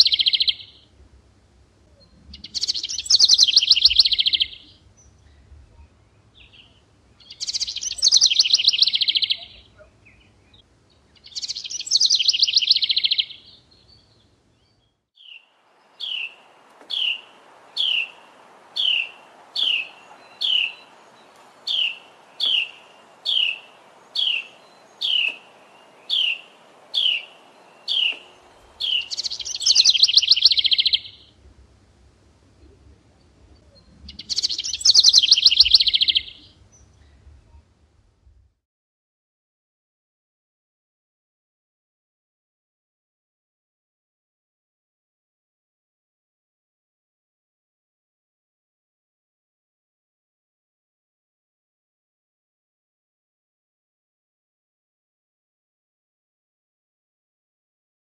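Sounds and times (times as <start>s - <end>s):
wren song phrases: 0.0s - 38.4s
steady hiss: 15.4s - 38.6s.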